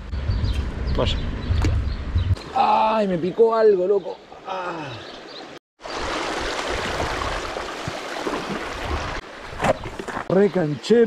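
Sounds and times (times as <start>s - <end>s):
creek water rushing: 5.1s - 10.7s.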